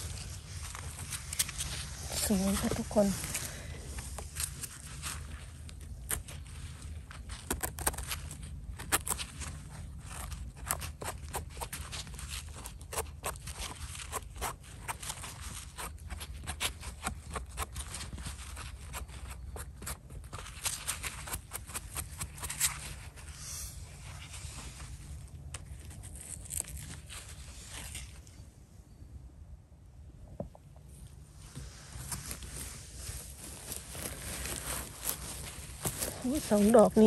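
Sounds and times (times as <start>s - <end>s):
knife scraping mushroom stem: 0.0s - 24.8s, 25.5s - 28.4s.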